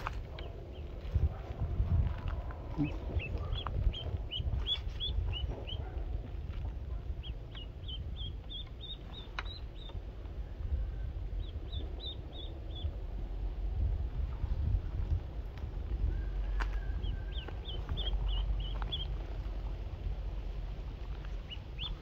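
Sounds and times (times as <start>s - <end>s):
low rumble: 0.0s - 22.0s
duckling peeping: 2.7s - 13.2s, 16.0s - 20.0s, 20.9s - 22.0s.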